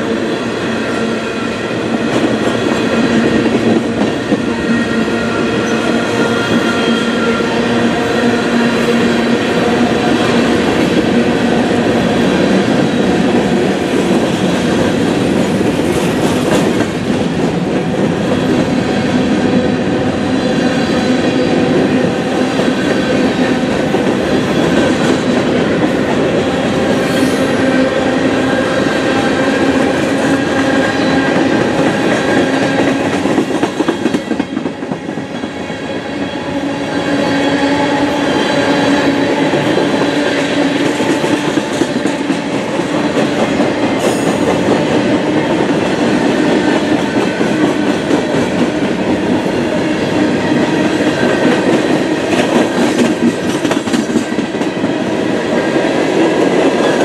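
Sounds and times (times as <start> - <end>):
train wheels rumbling on rail: 0.0 - 57.0
clickety-clack over rail joints: 12.6 - 18.6, 29.2 - 35.4, 39.0 - 49.6, 50.6 - 55.1.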